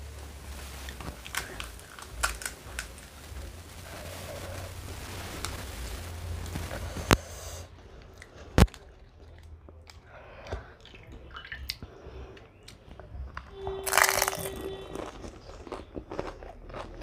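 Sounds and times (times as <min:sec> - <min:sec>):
soft rustling and wet sounds: 0:00.0 - 0:13.6
crisp shell cracking: 0:00.5 - 0:07.3, 0:13.8 - 0:14.7.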